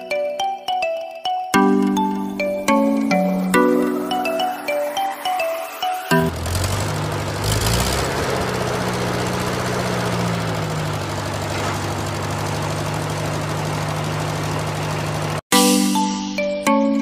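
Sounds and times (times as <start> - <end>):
tractor engine running: 5.7 - 15.5.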